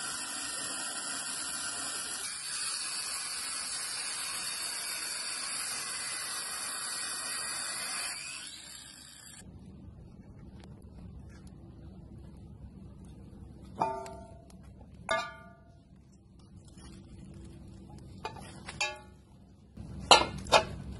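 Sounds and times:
angle grinder cutting metal: 0.0s - 9.4s.

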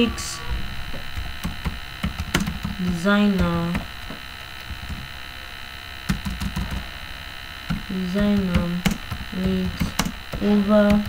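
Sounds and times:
electrical mains hum: 0.0s - 11.0s
keyboard keys clicking: 1.2s - 3.9s, 6.1s - 6.8s, 7.7s - 11.0s.

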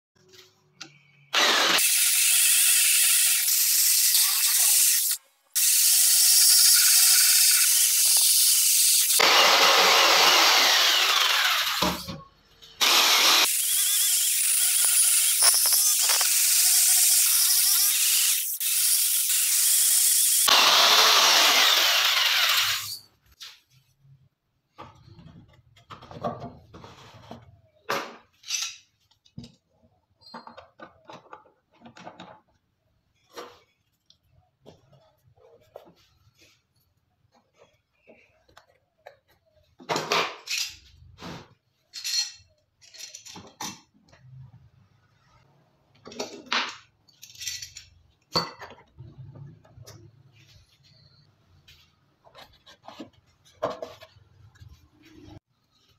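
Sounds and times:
power jigsaw cutting wood: 1.3s - 12.0s, 12.8s - 22.9s.

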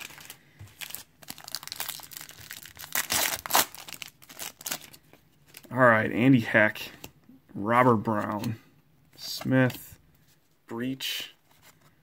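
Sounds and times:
wrapper crinkling and tearing: 0.0s - 5.7s.

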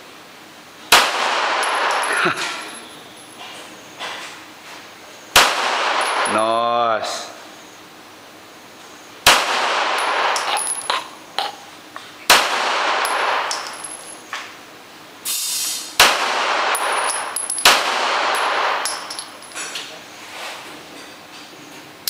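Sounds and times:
pistol shots echoing: 0.9s - 2.1s, 5.4s - 6.6s, 9.2s - 10.9s, 12.3s - 14.1s, 16.0s - 19.5s
brass casings clinking on concrete: 1.6s - 3.4s, 6.0s - 6.6s, 10.0s - 11.2s, 13.0s - 14.3s, 16.7s - 19.8s.

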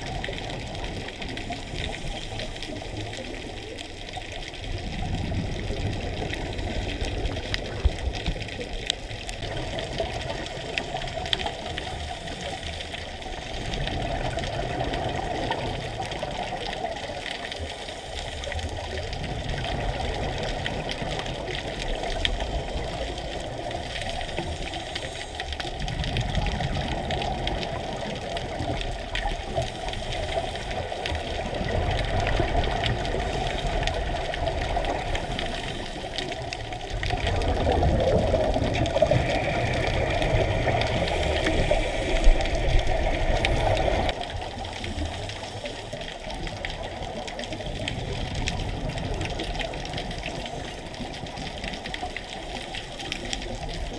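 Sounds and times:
underwater bubbling: 0.0s - 53.9s
diver breathing through regulator: 38.8s - 46.3s.

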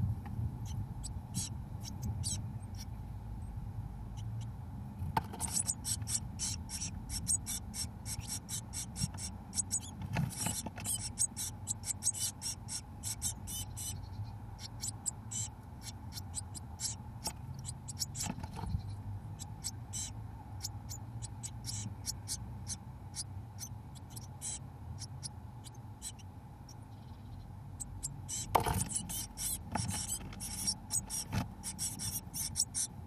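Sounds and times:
nestlings begging calls: 0.6s - 3.0s, 4.1s - 4.6s, 5.2s - 33.0s
bird knocking and scraping: 5.0s - 6.2s, 8.9s - 11.2s, 17.2s - 18.8s, 28.3s - 32.2s
birds shuffling on nest: 5.1s - 6.1s, 9.8s - 11.2s, 18.1s - 18.8s, 28.5s - 32.0s.

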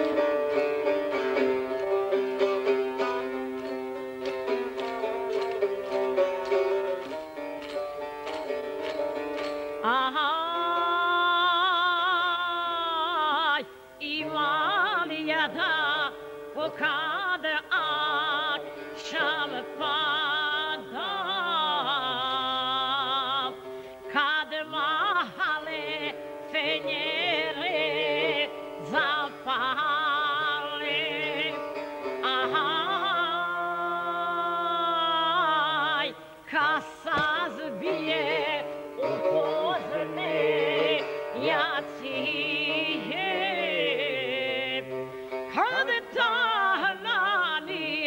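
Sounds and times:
saz playing: 0.0s - 11.5s, 36.9s - 48.0s
woman singing with vibrato: 9.8s - 48.0s.

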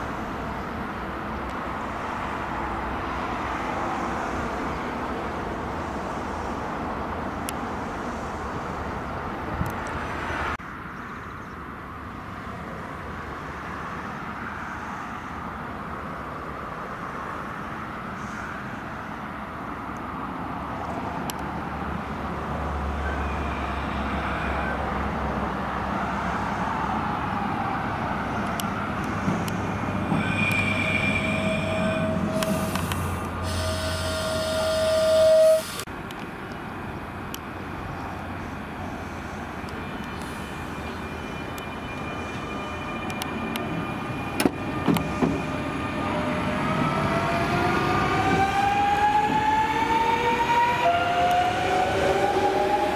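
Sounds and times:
train wheel and rail noise: 0.0s - 52.9s
train horn: 30.2s - 35.8s, 48.2s - 52.9s.

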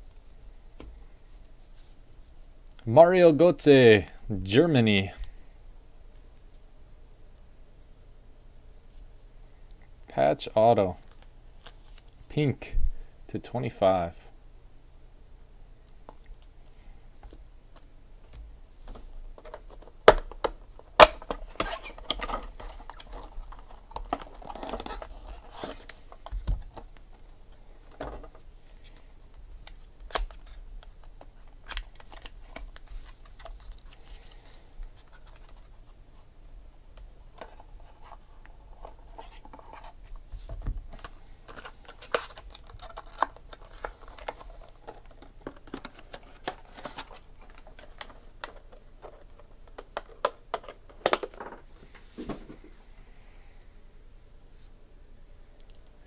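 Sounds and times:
foil wrapper and cards rustling: 21.0s - 26.3s, 40.9s - 51.1s.

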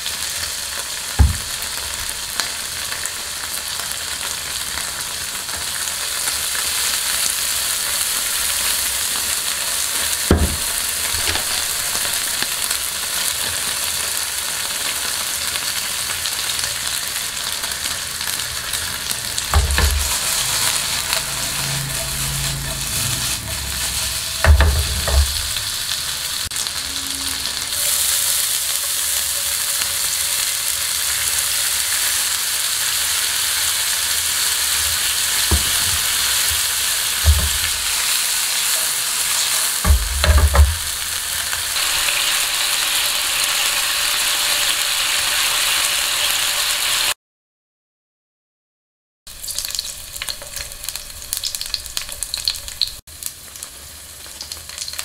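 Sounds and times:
beef sizzling in a wok: 0.0s - 47.2s, 49.3s - 55.0s
sharp knocks: 1.2s - 1.5s, 10.3s - 11.4s, 19.5s - 20.2s, 24.4s - 25.7s, 39.8s - 41.0s.

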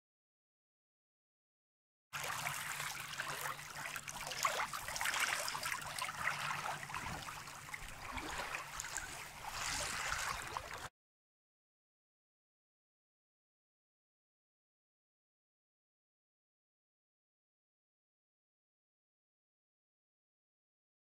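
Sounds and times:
water splashing against hull: 2.2s - 10.9s.

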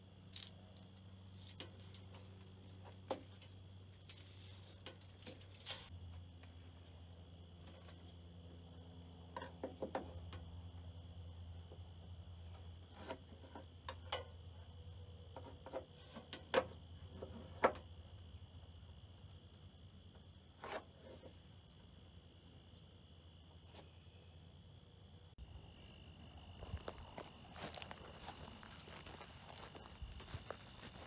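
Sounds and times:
crickets chirping: 0.0s - 31.0s.

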